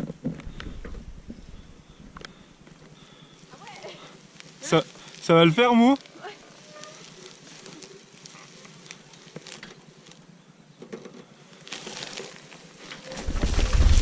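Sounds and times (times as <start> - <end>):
wheelchair rattling over dirt: 3.4 - 14.0.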